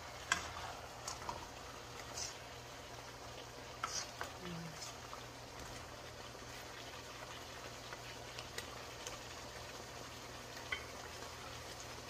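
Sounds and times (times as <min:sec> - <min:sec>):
food sizzling in a wok: 0:00.0 - 0:12.0
light clicks of spatula and dishes: 0:00.2 - 0:01.4, 0:03.8 - 0:05.0.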